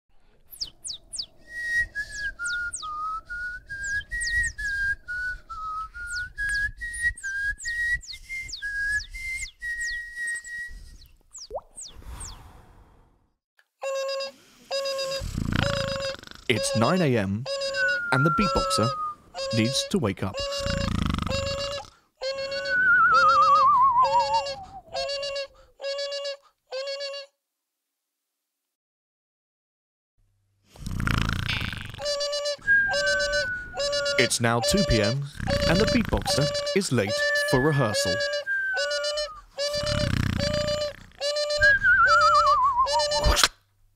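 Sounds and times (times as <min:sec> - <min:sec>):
high falling mouth chirps: 0:00.6 - 0:12.5, 0:13.8 - 0:27.3, 0:30.8 - 0:43.5
person whistling a melody: 0:01.5 - 0:11.1, 0:16.5 - 0:20.7, 0:22.3 - 0:26.4, 0:32.0 - 0:43.3
beatboxer imitating alarm beeps: 0:13.8 - 0:27.3, 0:31.5 - 0:43.5.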